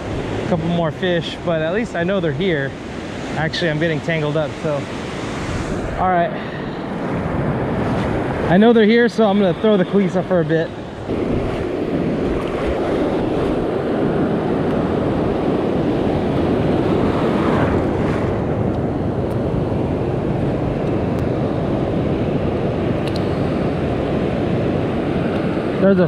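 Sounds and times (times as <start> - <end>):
wind on microphone: 0.0 - 25.8
ocean surf rushing: 0.0 - 26.0.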